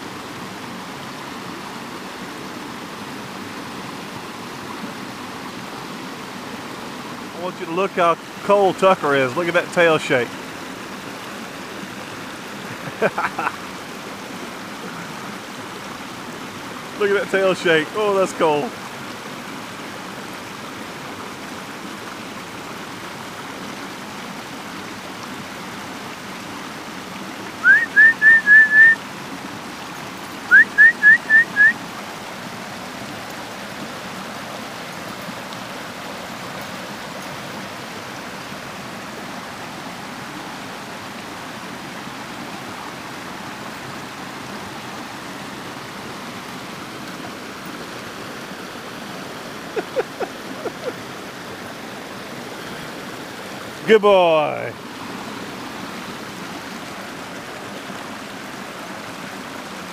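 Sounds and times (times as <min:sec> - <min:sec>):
creek water rushing over rocks: 0:00.0 - 0:59.9
short rising whistled notes: 0:27.6 - 0:29.0, 0:30.5 - 0:31.8.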